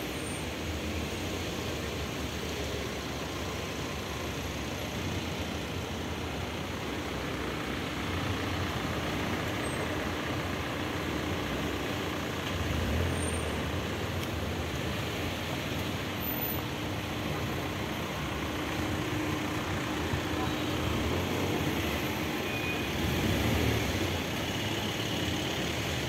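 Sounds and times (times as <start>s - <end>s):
street traffic rumble: 0.0s - 26.0s.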